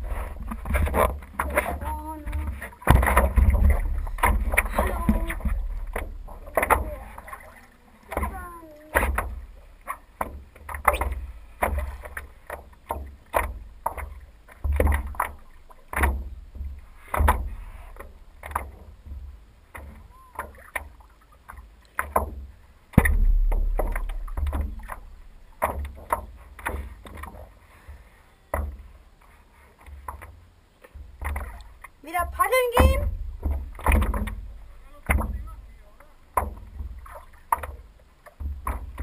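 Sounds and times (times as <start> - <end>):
low rumble: 0.0 - 9.9, 23.0 - 25.7, 32.8 - 37.4
paddle splashing in water: 0.0 - 39.0.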